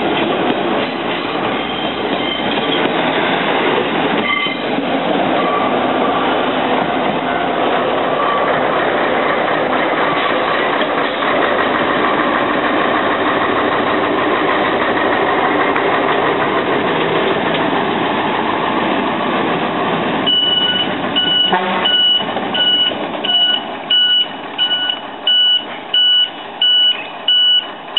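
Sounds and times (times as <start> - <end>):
diesel engine: 0.0 - 27.9
two-tone electronic beep: 20.3 - 27.7.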